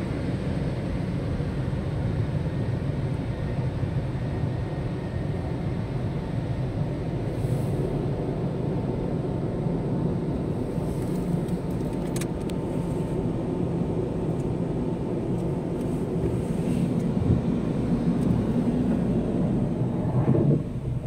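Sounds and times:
car wash brushes swishing: 15.9s - 17.0s.

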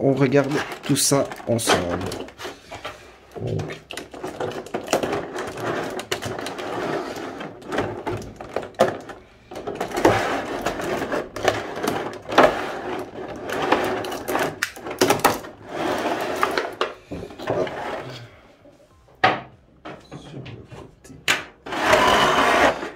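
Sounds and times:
plastic packaging rustling: 0.0s - 17.0s.

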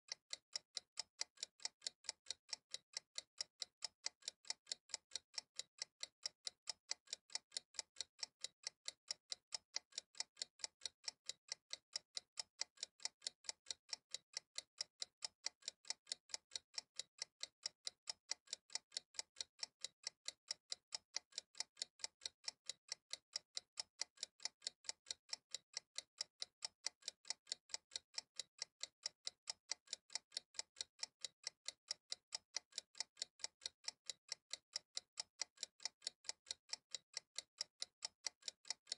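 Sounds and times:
clock ticking: 0.1s - 38.9s.

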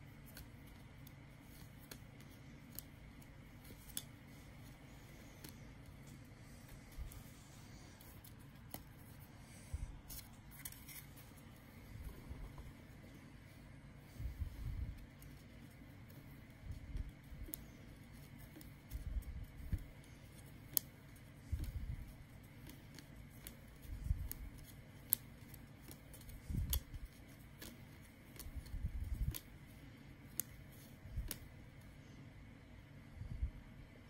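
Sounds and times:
soft rubbing and handling bumps: 0.0s - 32.0s.

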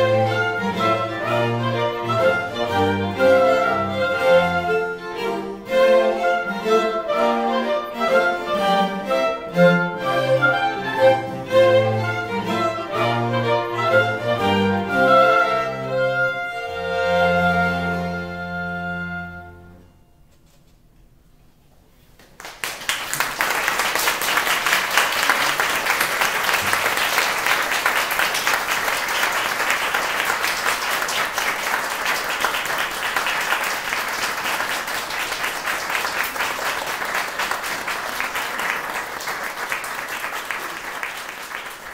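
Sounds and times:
audience applause: 22.2s - 41.9s.

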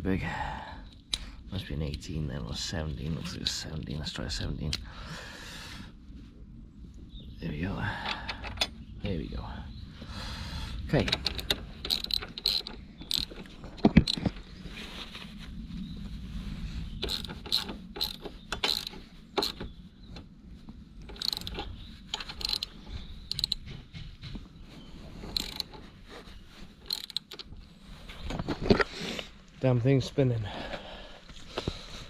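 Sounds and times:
socket ratchet clicking: 11.1s - 14.2s, 17.0s - 19.6s, 21.0s - 23.7s, 25.3s - 25.8s, 26.8s - 27.5s.

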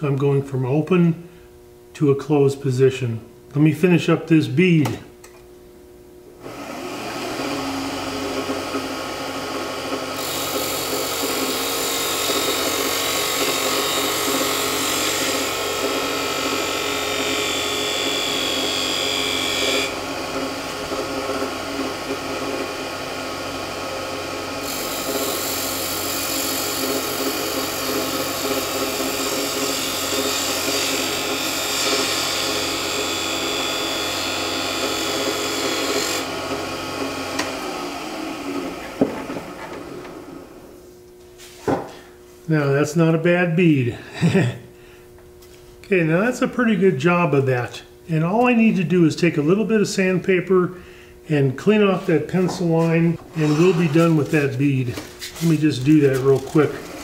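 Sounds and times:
wood lathe running: 6.4s - 40.7s, 52.8s - 54.6s, 55.2s - 57.0s.

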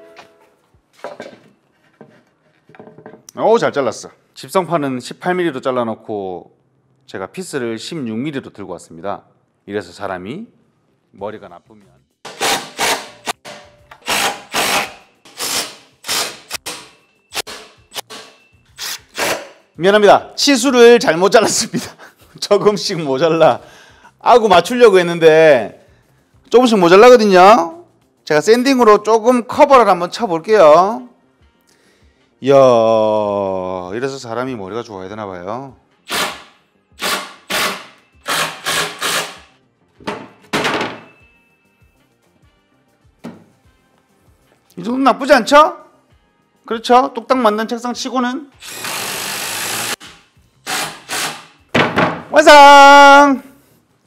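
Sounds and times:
wooden board knocks and scrapes: 1.0s - 3.2s
cordless drill driving screws: 14.0s - 17.5s, 37.0s - 39.4s, 48.6s - 51.5s.

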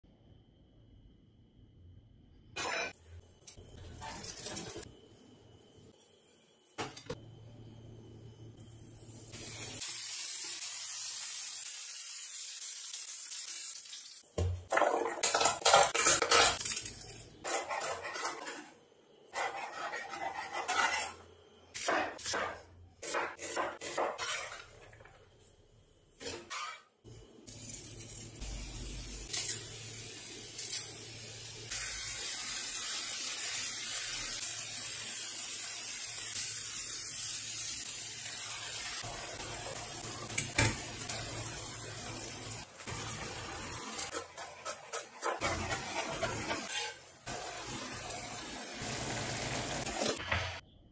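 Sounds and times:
food sizzling in frying pan: 8.6s - 17.4s, 26.5s - 50.6s.

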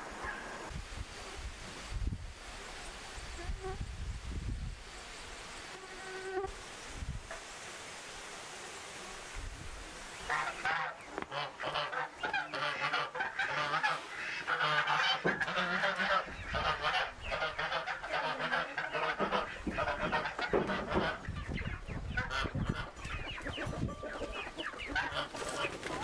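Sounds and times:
poultry calling: 10.2s - 26.0s.

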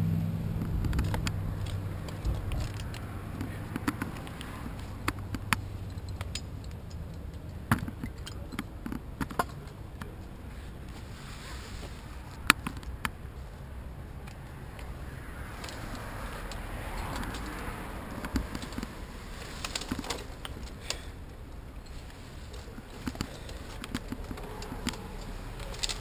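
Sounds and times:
climbing gear clicks and knocks: 0.6s - 11.0s, 14.2s - 26.0s
scraping against bark: 10.5s - 12.8s.

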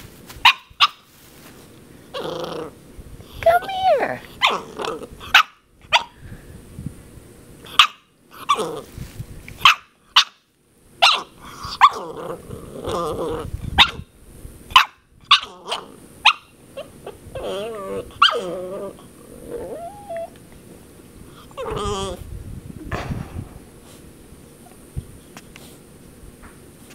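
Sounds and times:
puppy barking: 0.4s - 1.0s, 5.3s - 6.1s, 7.7s - 8.6s, 9.6s - 10.4s, 11.0s - 12.0s, 13.8s - 14.0s, 14.7s - 17.2s.

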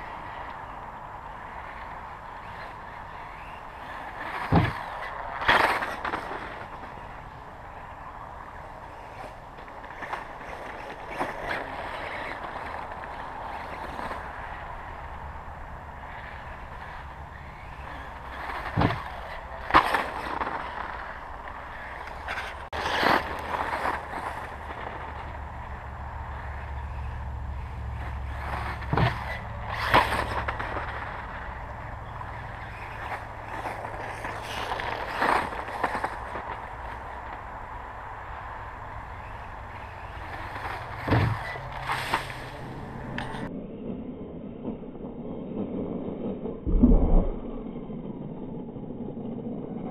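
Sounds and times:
low rumble: 40.8s - 49.9s.

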